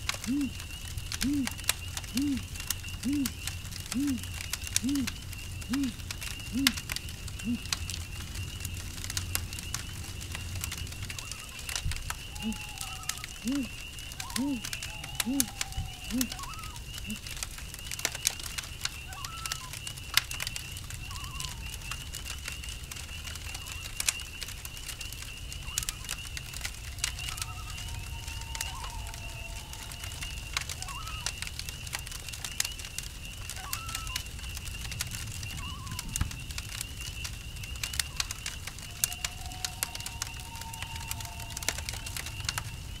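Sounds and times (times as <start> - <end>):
campfire crackling: 0.0 - 43.0
crickets trilling: 0.0 - 43.0
high gliding calls: 0.1 - 6.8, 7.4 - 7.7, 12.3 - 17.2, 26.9 - 31.4
owl hooting: 0.1 - 7.7, 12.3 - 17.3, 27.0 - 31.4, 33.6 - 34.2, 35.6 - 36.1, 38.9 - 42.7.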